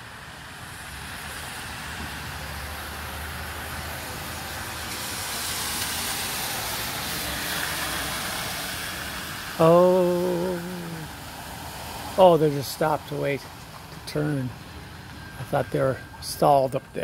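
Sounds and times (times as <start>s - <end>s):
tyres hissing through water: 3.1s - 16.7s
low engine rumble: 9.0s - 17.0s.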